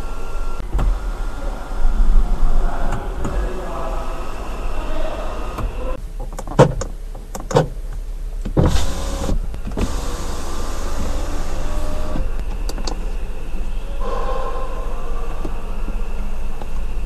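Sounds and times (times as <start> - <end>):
electric window motor running: 3.0 - 6.0, 8.5 - 13.3.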